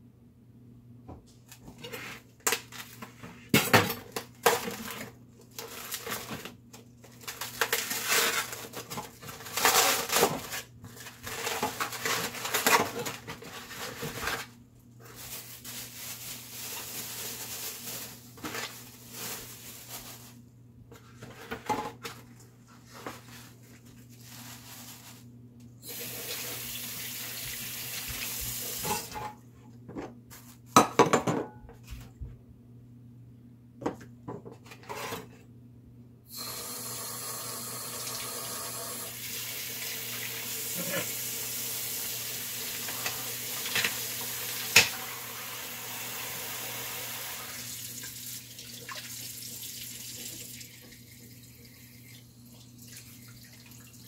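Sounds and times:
plastic packaging rustling: 0:01.5 - 0:20.4, 0:21.0 - 0:25.4
dishware knocking and clattering: 0:30.8 - 0:31.6.

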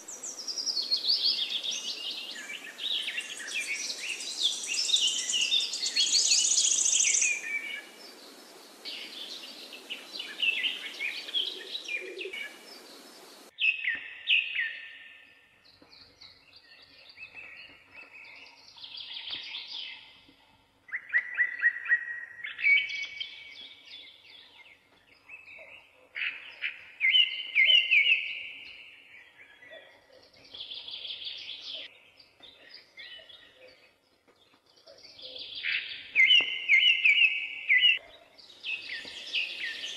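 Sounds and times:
songbirds chirping and singing: 0:00.0 - 0:39.9
steady hiss: 0:06.1 - 0:13.5.

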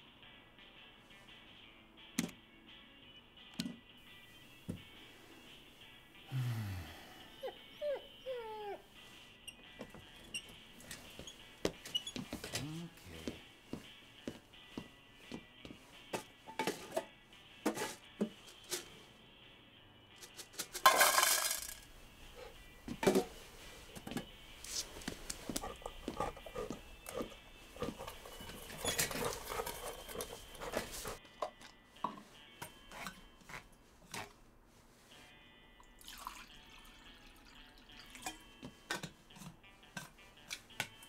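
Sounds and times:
dry dog food poured into bowl: 0:20.8 - 0:21.8
dog crunching food in metal bowl: 0:25.6 - 0:31.2.

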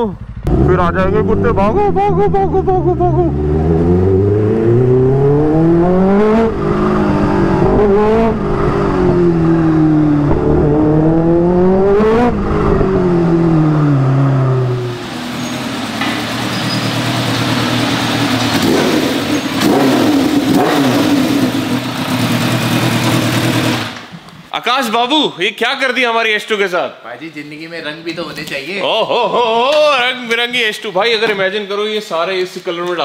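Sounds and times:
motorcycle engine revving: 0:00.0 - 0:24.1.

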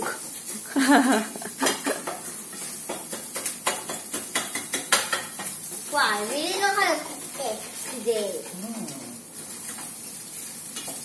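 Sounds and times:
food sizzling: 0:00.0 - 0:11.0
utensil scraping metal pan: 0:06.6 - 0:08.6.

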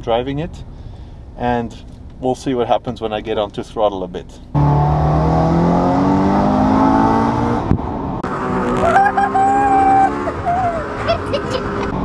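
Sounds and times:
car engine revving: 0:04.5 - 0:12.0.

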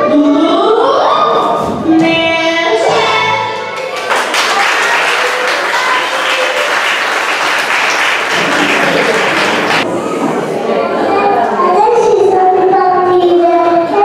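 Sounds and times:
audience applause: 0:03.8 - 0:09.9.

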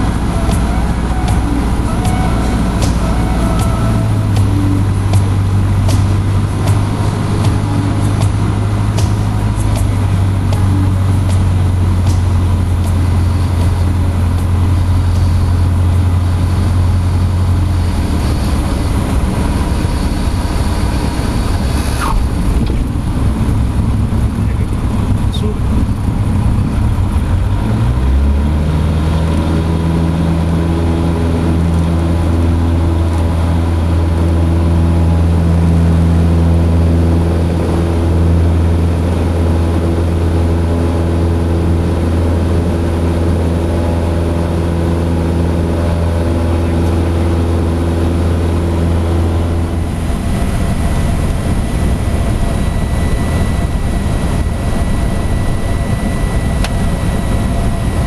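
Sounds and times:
faint thin high tone: 0:00.0 - 0:05.0
light aircraft engine drone: 0:00.0 - 0:58.0
rushing wind: 0:00.0 - 0:58.0.

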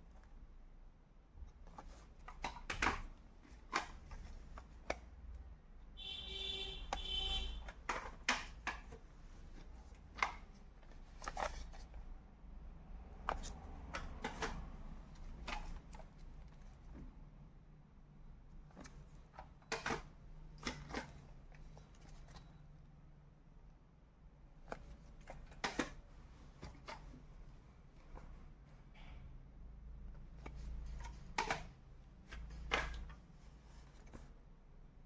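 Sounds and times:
plastic cassette cases clicking: 0:01.7 - 0:05.3, 0:06.9 - 0:12.1, 0:13.1 - 0:16.8, 0:18.7 - 0:22.4.

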